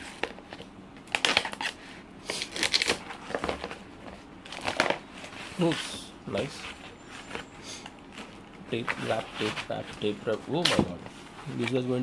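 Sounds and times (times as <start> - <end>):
packaging tape tearing: 1.1 - 3.4.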